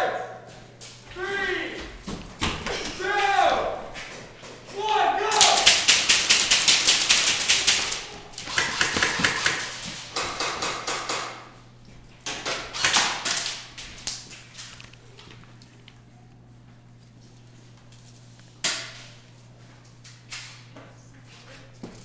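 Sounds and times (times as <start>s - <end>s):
airsoft guns firing bursts: 5.3s - 11.4s, 12.3s - 13.7s.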